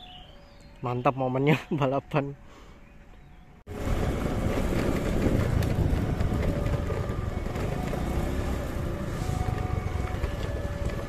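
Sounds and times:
diesel locomotive engine rumbling: 0:03.7 - 0:11.0.

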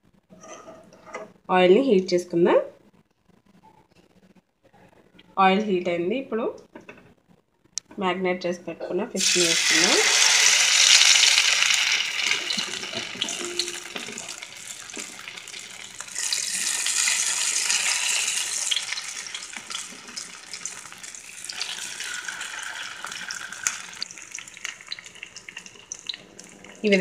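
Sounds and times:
fish sizzling in hot oil: 0:09.2 - 0:26.6.

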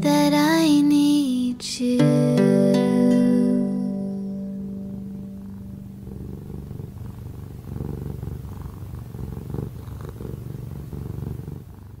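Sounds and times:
cat purring: 0:03.6 - 0:12.0.

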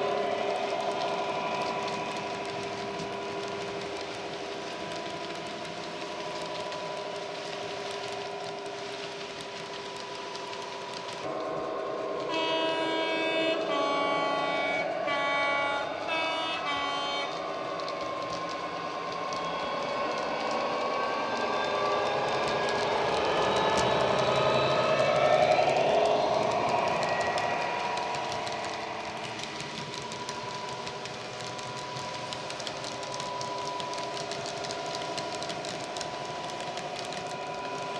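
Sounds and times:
two-tone horn blasts: 0:12.3 - 0:17.4.

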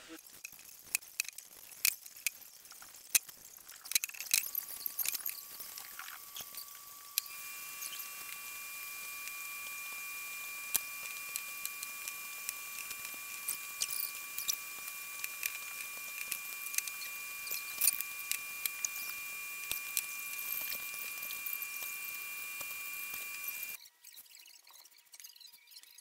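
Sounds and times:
high-pitched electrical whine: 0:04.3 - 0:23.8.

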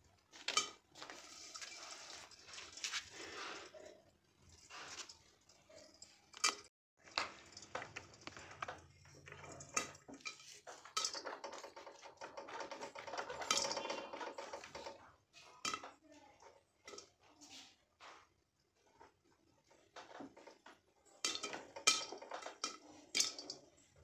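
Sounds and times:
popcorn popping in a pan: 0:04.4 - 0:24.0.

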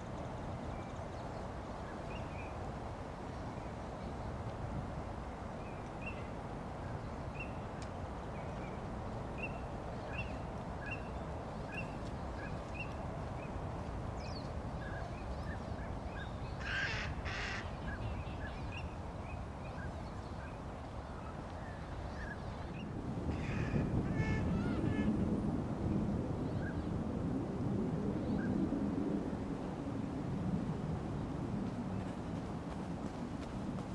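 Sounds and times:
wading birds calling: 0:16.6 - 0:18.2.

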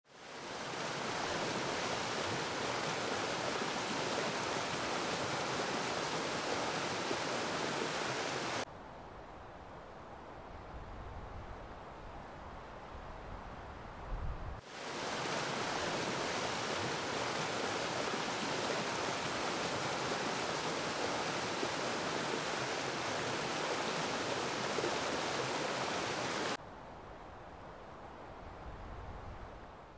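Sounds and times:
stream rushing over rocks: 0:00.1 - 0:08.7, 0:14.6 - 0:26.6.

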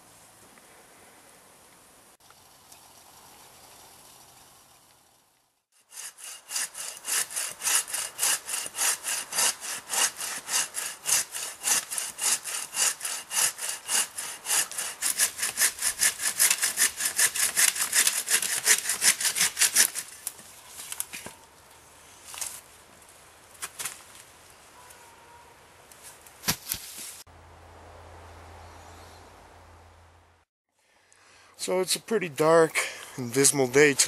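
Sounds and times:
bow saw cutting wood: 0:05.8 - 0:20.3.

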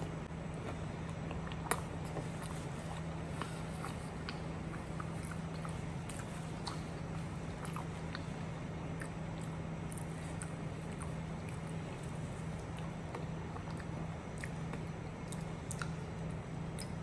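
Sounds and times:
chewing fried food: 0:00.0 - 0:17.0
steady low hum: 0:00.0 - 0:17.0
wet mouth clicks: 0:03.4 - 0:08.3.

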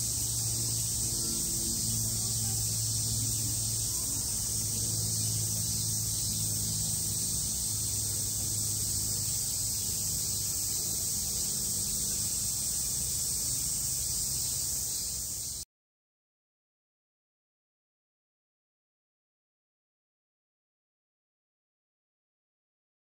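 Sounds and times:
cicadas chorus: 0:00.0 - 0:15.6
faint low hum: 0:00.0 - 0:15.6.

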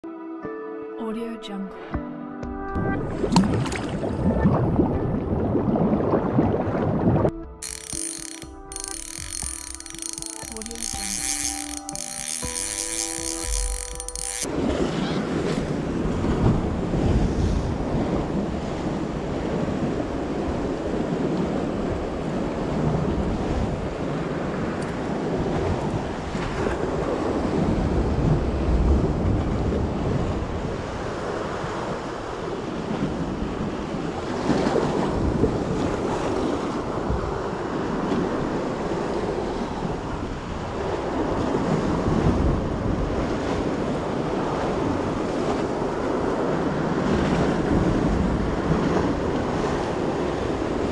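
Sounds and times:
sea waves washing and slapping: 0:14.5 - 0:50.9.

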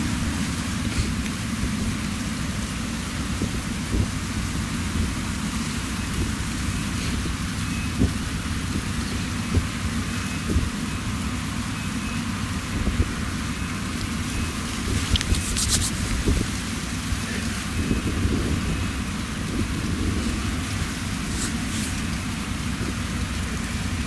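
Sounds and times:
combine harvester low rumble: 0:00.0 - 0:24.0
hiss of grain: 0:15.3 - 0:16.2, 0:21.3 - 0:22.1.

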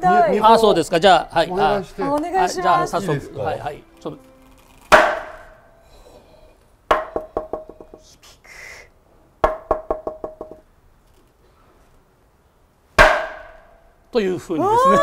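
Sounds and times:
mallet knocking wooden board: 0:04.9 - 0:05.4, 0:06.9 - 0:08.0, 0:09.4 - 0:10.6, 0:13.0 - 0:13.6.

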